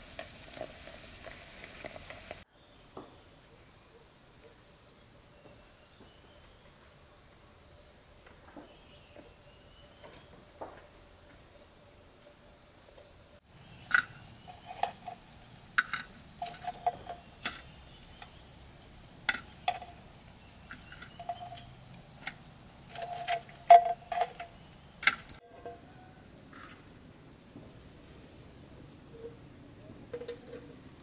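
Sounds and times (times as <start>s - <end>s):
utensil clinking against cookware: 13.8s - 18.4s, 19.2s - 25.8s.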